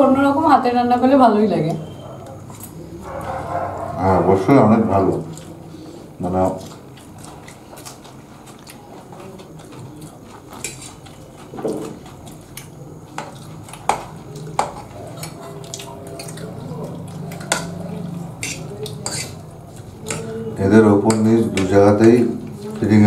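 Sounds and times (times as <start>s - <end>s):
low room hum: 0.0s - 23.0s
fork clinking on ceramic plates: 10.5s - 11.9s, 13.2s - 22.2s.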